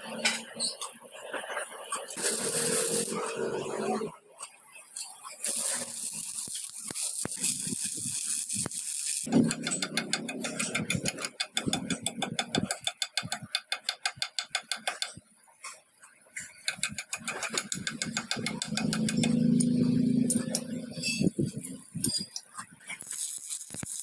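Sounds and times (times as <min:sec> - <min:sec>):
arc welding crackling: 0:01.9 - 0:03.8, 0:05.0 - 0:15.2, 0:16.6 - 0:24.0
fast metallic clicks: 0:08.6 - 0:15.2, 0:16.6 - 0:19.7.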